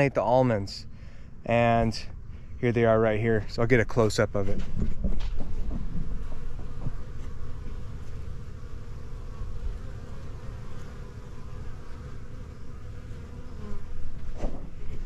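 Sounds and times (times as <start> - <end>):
bees buzzing: 5.3 - 15.0.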